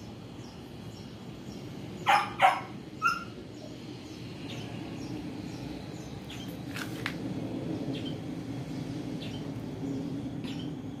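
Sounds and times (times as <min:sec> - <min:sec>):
dog barking: 0:02.1 - 0:03.3.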